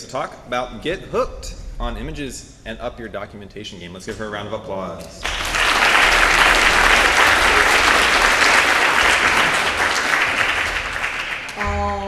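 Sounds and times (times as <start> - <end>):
audience applause: 5.2 - 11.7.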